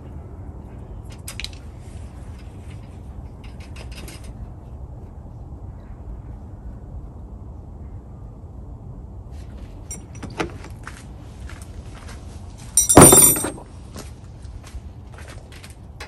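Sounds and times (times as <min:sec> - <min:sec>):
metal hand tools clinking: 0:12.8 - 0:13.6
wrenches clattering into toolbox: 0:12.8 - 0:13.7.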